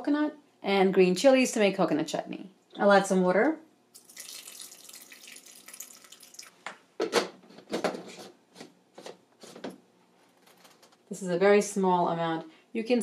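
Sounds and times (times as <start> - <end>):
water pouring into plastic cup: 4.0 - 6.6.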